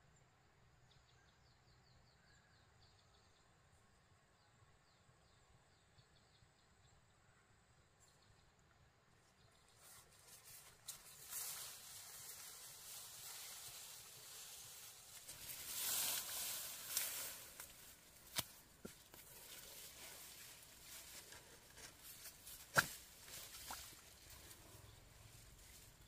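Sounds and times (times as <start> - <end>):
soft rustling: 9.7 - 26.0.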